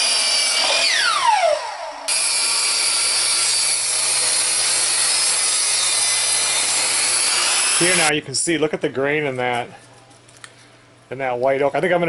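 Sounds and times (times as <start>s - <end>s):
miter saw motor whining: 0.0s - 8.1s
table saw ripping log: 0.0s - 8.1s.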